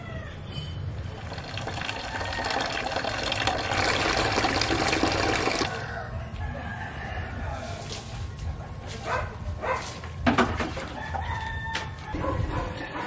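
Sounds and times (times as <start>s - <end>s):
tap water filling a container: 1.1s - 5.8s.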